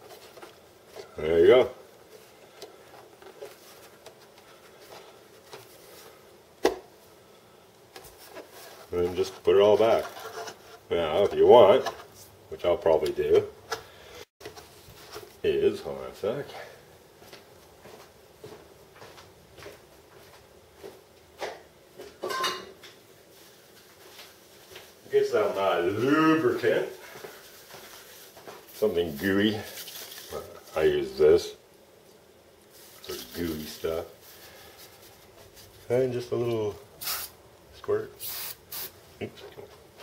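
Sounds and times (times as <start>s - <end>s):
objects knocking and clattering: 22.2s - 22.8s.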